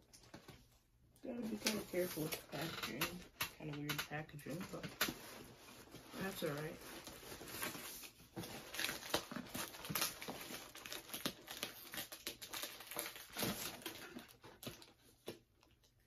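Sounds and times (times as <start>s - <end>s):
packaging crinkling and rustling: 0.0s - 15.9s.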